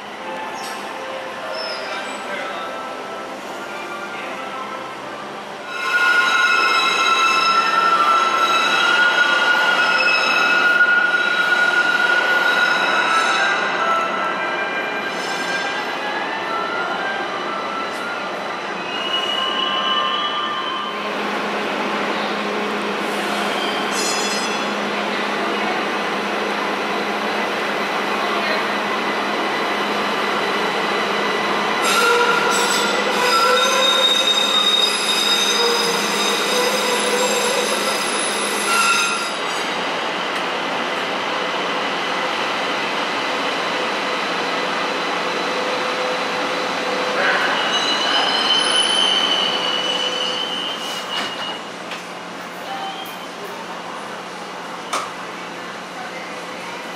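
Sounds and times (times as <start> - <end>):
train rumbling in tunnel: 0.0 - 56.9
high-pitched wheel squeal: 5.7 - 14.0, 31.8 - 39.4, 47.3 - 51.6.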